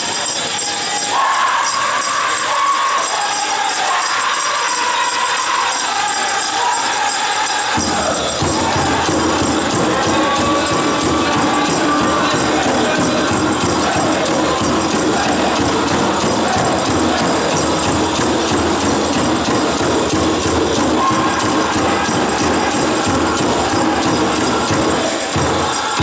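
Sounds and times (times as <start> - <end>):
bells jingling: 0.0 - 26.0
group singing high-pitched: 0.0 - 26.0
low drumbeat: 8.4 - 25.7.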